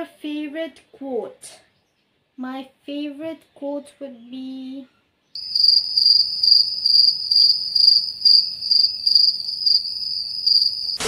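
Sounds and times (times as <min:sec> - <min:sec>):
cricket chirping: 0:05.4 - 0:11.0.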